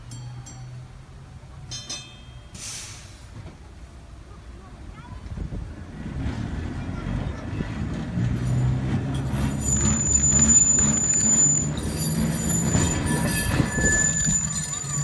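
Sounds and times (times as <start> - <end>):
tram motor hum: 0.0 - 15.0
high wheel squeal: 8.4 - 15.0.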